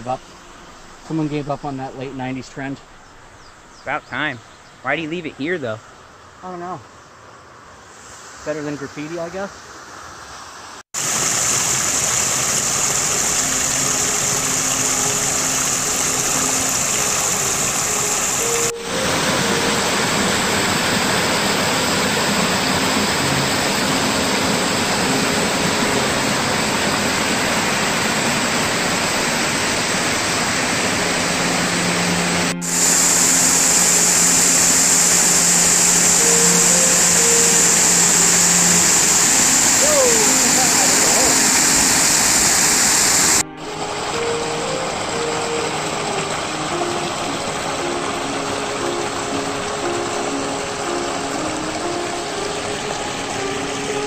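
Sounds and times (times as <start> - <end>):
water rushing over rocks: 11.0 - 54.0.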